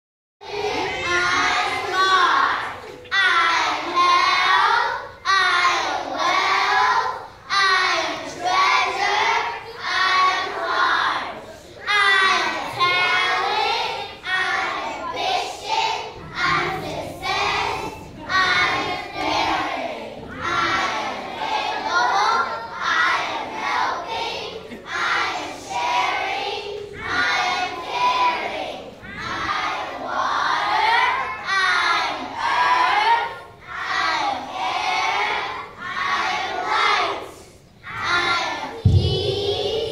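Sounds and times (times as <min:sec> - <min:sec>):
children singing: 0:00.4 - 0:39.9.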